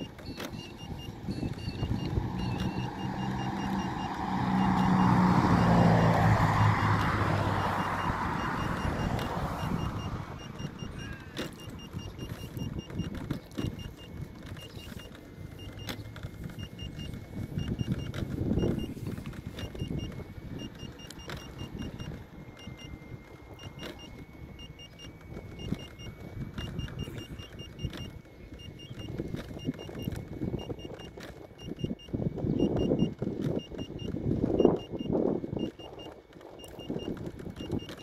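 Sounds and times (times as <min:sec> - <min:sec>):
short high beeps: 0:00.0 - 0:23.0
motor whine: 0:00.0 - 0:38.0
wind rumbling on microphone: 0:00.0 - 0:38.0.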